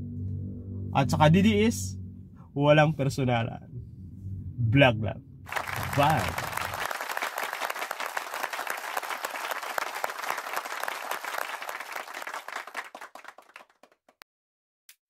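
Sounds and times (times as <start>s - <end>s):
crowd applause: 5.5s - 14.0s.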